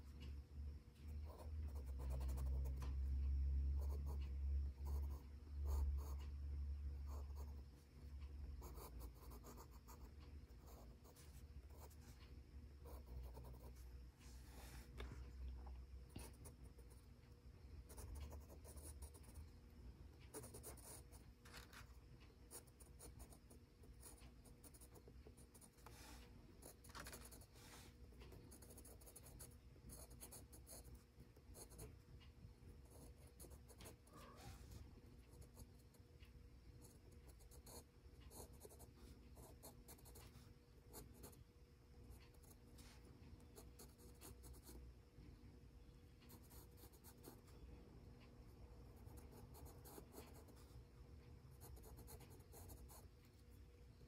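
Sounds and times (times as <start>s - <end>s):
pencil scratching on paper: 3.8s - 6.3s, 8.6s - 15.0s, 16.1s - 17.0s, 17.9s - 19.4s, 20.3s - 21.9s, 22.5s - 31.9s, 36.8s - 41.4s, 49.1s - 50.8s, 51.5s - 53.1s.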